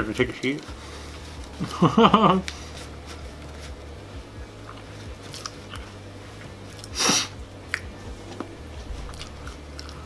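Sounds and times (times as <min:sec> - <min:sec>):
loud snort through nose: 0:07.0 - 0:07.4.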